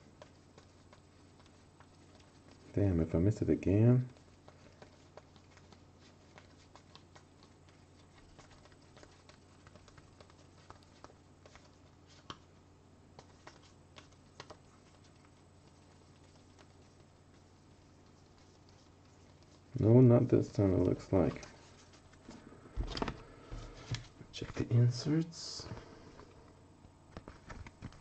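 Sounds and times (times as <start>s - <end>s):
trading cards clicking and tapping: 13.2s - 16.8s.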